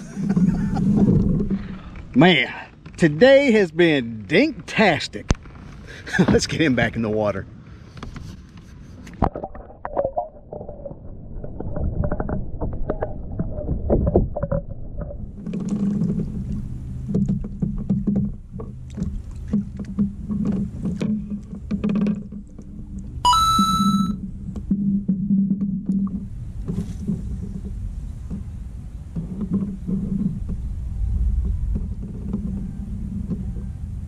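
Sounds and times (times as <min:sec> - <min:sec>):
low hum: 0:08.6 - 0:29.1
short high beep: 0:23.2 - 0:24.2.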